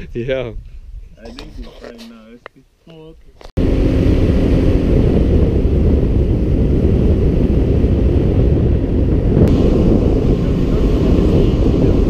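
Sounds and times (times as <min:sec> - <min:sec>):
wind buffeting microphone: 0:00.0 - 0:01.8, 0:03.2 - 0:12.0
boat motor running: 0:03.6 - 0:12.0.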